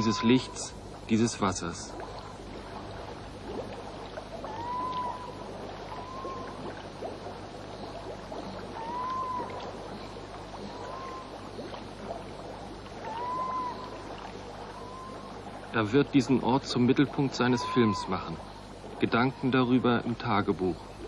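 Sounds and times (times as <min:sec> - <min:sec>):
rising and falling whistled call: 0:00.0 - 0:00.7, 0:04.5 - 0:06.6, 0:08.5 - 0:09.7, 0:10.6 - 0:11.4, 0:13.0 - 0:14.0, 0:14.7 - 0:15.4, 0:17.4 - 0:18.3
small water splashes: 0:00.0 - 0:21.0
water trickling and lapping: 0:00.0 - 0:21.0.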